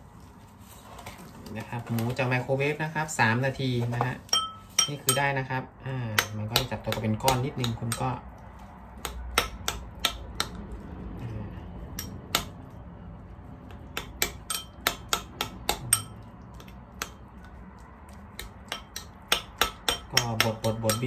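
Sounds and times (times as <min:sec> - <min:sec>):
metal spoon tapping ceramic bowl: 0:04.0 - 0:05.4, 0:06.1 - 0:08.2, 0:14.0 - 0:17.6, 0:18.4 - 0:21.0.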